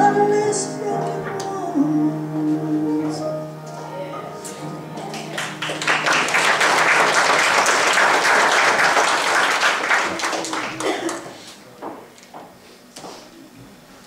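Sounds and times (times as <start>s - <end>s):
crowd applauding: 5.0s - 11.6s.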